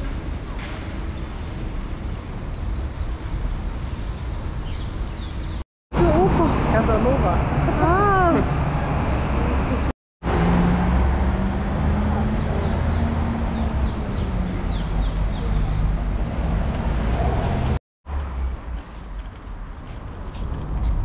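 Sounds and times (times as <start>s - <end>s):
street traffic rumble: 0.0s - 21.0s
vehicle engine humming: 6.0s - 21.0s.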